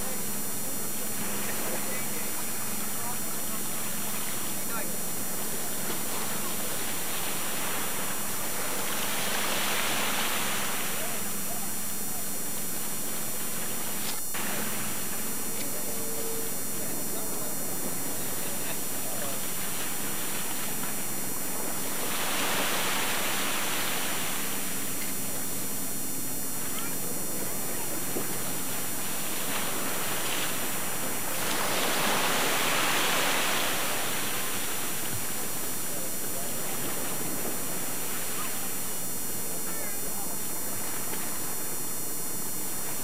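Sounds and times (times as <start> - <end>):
faint indistinct voices: 0.0 - 43.0
water noise: 0.0 - 43.0
water hiss: 5.6 - 11.2, 21.5 - 24.8, 29.0 - 35.7.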